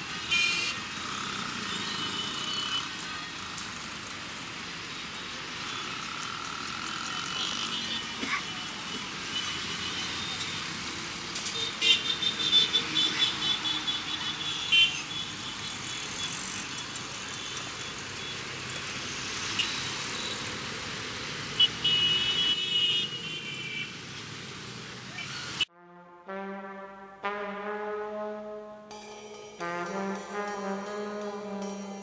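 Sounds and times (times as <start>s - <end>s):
street traffic: 0.0s - 32.0s
high-pitched horn toots: 25.7s - 32.0s.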